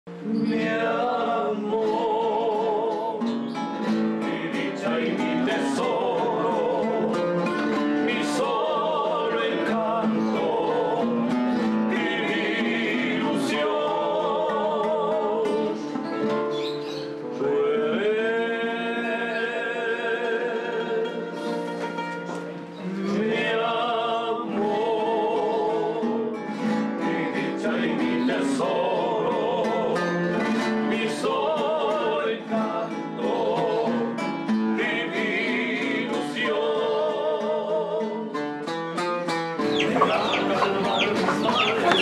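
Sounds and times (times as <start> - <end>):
person singing with vibrato: 0.1 - 3.4, 4.2 - 15.9, 39.6 - 42.0
plucked acoustic guitar: 0.1 - 42.0.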